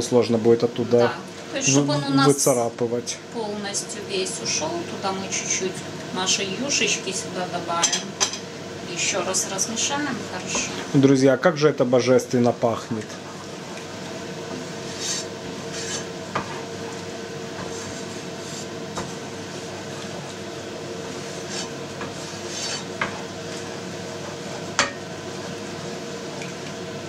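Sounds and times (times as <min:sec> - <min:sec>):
spatula scraping sauce in pan: 0:14.8 - 0:16.1, 0:17.6 - 0:18.8, 0:21.2 - 0:23.7.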